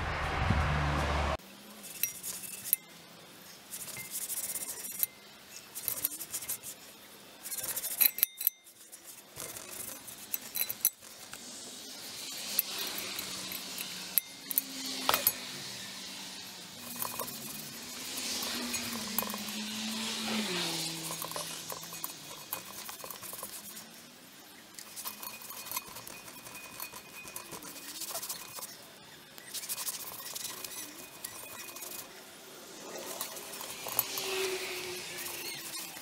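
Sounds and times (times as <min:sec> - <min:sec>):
rushing noise: 0:00.0 - 0:01.4
rag rubbing cast iron pot: 0:01.8 - 0:02.8, 0:03.7 - 0:11.4, 0:12.0 - 0:15.6, 0:16.7 - 0:24.0, 0:24.7 - 0:36.0
cast iron pot clinking: 0:07.5 - 0:08.8, 0:09.4 - 0:11.2, 0:12.4 - 0:15.5, 0:16.8 - 0:23.8, 0:24.8 - 0:28.8, 0:29.6 - 0:32.2, 0:32.8 - 0:36.0.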